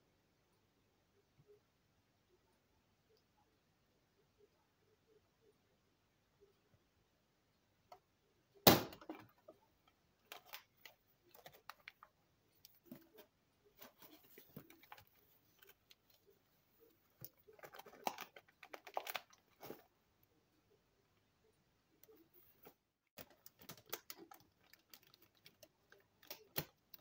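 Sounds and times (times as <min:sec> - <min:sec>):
plastic bag crinkling: 0:23.2 - 0:26.6.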